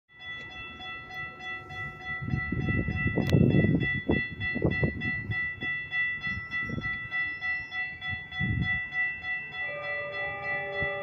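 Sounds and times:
crossing warning bell ringing: 0.1 - 11.0.

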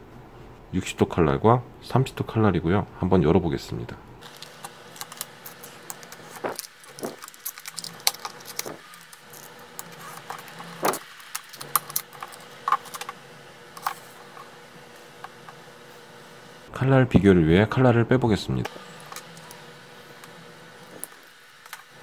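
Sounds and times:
plastic packaging crackling: 4.2 - 15.9.

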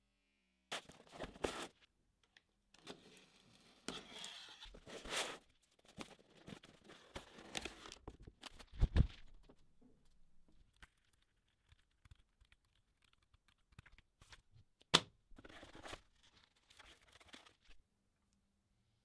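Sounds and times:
cardboard and paper tearing: 2.8 - 7.9.

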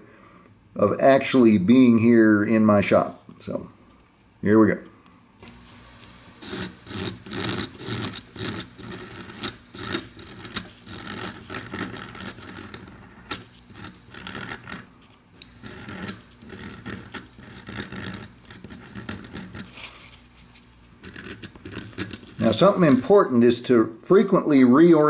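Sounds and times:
rotary tool grinding wood: 5.4 - 23.2.

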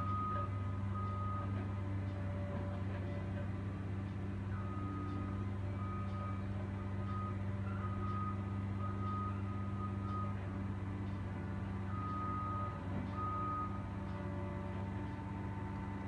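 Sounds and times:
heavy machine engine running: 0.0 - 16.0.

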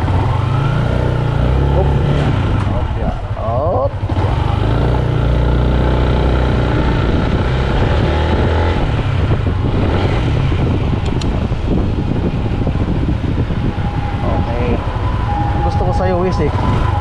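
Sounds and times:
road noise: 0.0 - 17.0
scooter engine droning: 0.0 - 17.0
sharp click: 11.0 - 11.3.

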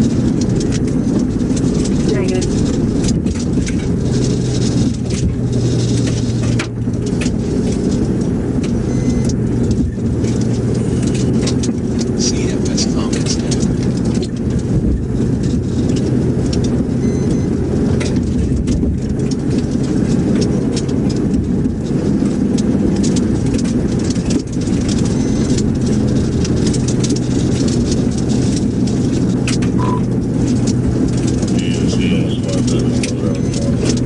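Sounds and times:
tyre and engine drone: 0.0 - 34.0
short faint beep: 8.8 - 9.3, 17.0 - 17.5, 25.1 - 25.6, 29.8 - 30.1, 33.2 - 33.8.

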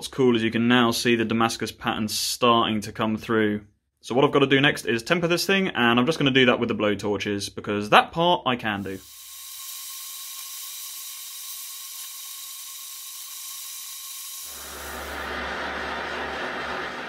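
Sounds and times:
blow torch hissing: 8.8 - 17.0.

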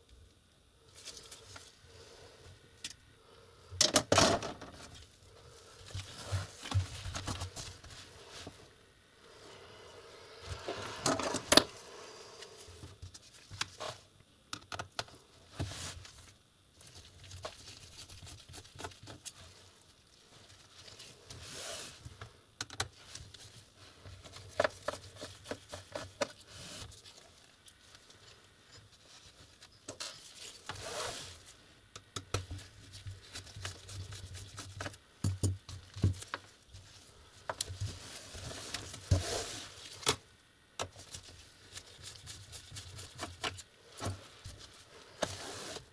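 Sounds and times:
parts rubbing and scraping: 10.4 - 12.9.

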